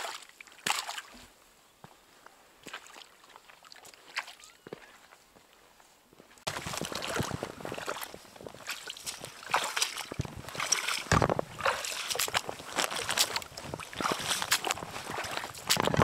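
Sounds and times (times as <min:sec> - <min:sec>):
footsteps splashing through water: 0:00.0 - 0:01.3, 0:02.6 - 0:05.2, 0:06.4 - 0:16.0
footsteps on wet wooden plank: 0:06.1 - 0:16.0.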